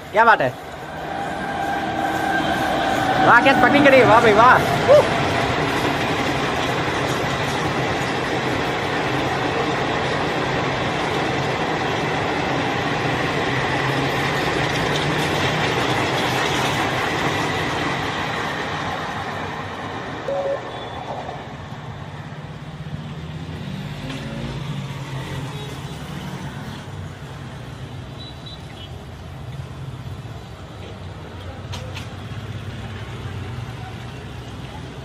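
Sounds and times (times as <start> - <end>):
train rumble and wheel clatter: 0.0 - 28.2, 29.0 - 35.0
short tone: 0.5 - 5.2, 20.3 - 21.3.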